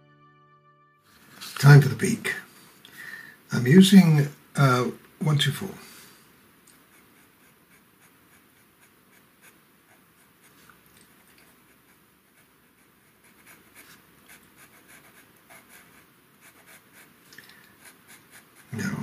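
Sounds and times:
pencil scratching on paper: 6.8 - 19.0.

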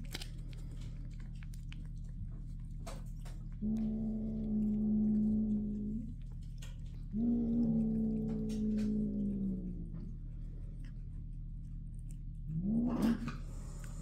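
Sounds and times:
cat growling low: 3.2 - 11.3, 12.4 - 14.0.

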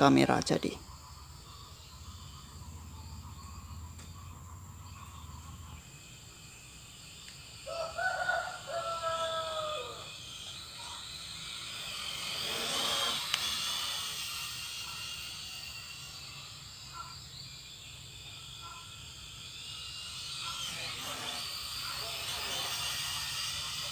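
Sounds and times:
insects buzzing: 0.0 - 23.9
rooster crowing: 7.5 - 10.4.

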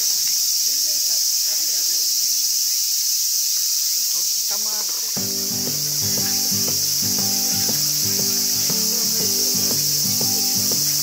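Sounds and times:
insects droning: 0.0 - 11.0
music of plucked sustained notes: 5.2 - 11.0.

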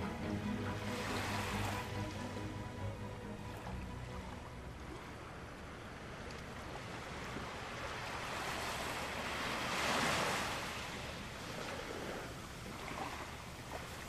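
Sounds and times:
small waves washing onto sand: 3.5 - 14.0.

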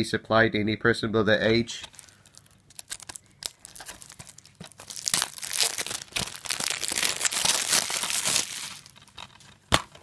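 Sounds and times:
shrink-wrap crinkling and tearing: 1.8 - 9.4.

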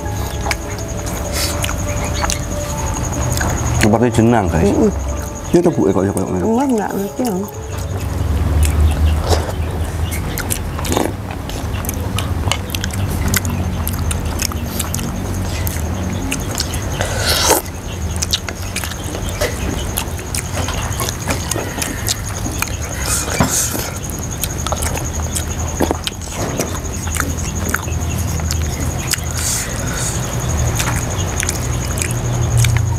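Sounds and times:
chewing: 0.0 - 32.9
steady low hum: 0.0 - 32.9.

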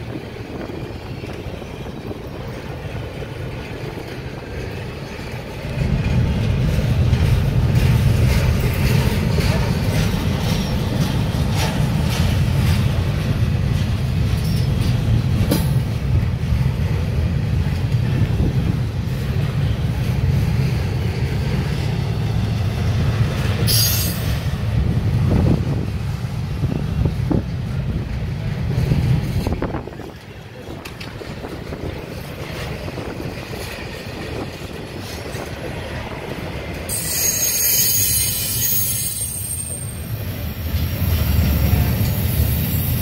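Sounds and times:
freight train rumbling past: 0.0 - 43.0
wheels clicking over rail joints: 0.0 - 43.0.

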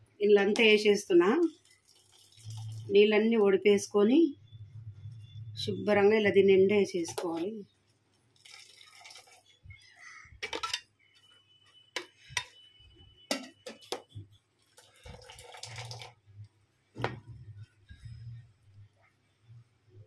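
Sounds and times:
water dripping: 1.4 - 3.0, 8.2 - 10.6, 13.3 - 16.5
metal spoon clinking on pot: 10.4 - 10.9, 12.0 - 12.6.

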